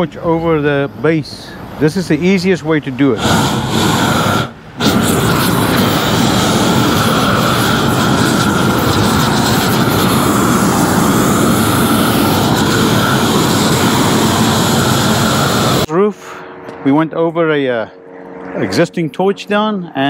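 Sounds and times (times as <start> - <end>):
roofing torch burning: 3.0 - 15.9.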